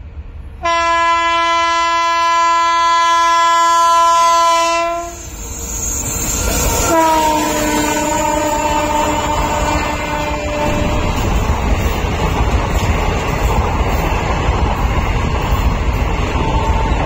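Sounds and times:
train rumbling: 0.0s - 17.0s
train horn blast: 0.6s - 5.4s, 6.8s - 11.3s.

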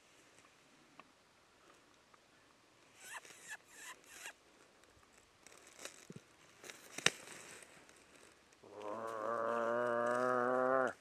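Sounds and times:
long bleat-like call: 8.7s - 11.0s.

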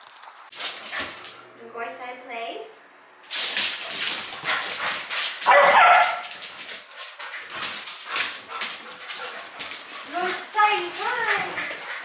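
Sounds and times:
dog paws clicking on wooden floor: 0.0s - 1.4s, 3.3s - 12.0s
dog barking: 5.4s - 6.3s.

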